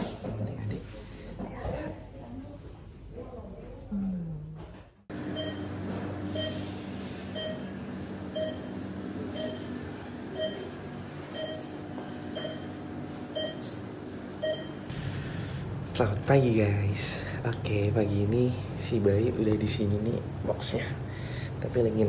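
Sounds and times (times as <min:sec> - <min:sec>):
steady low hum: 0:00.0 - 0:22.0
patient monitor beeping: 0:05.1 - 0:14.9.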